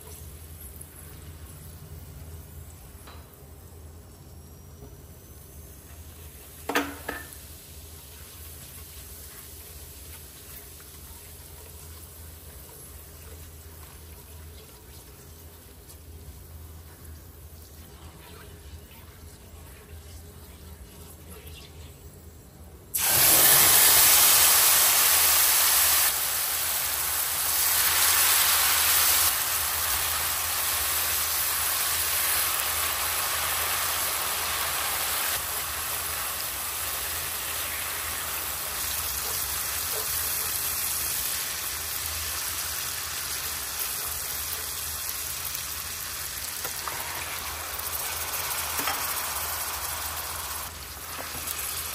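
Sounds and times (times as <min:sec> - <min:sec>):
hot oil sizzling in a pot: 0:05.2 - 0:18.8, 0:22.9 - 0:51.9.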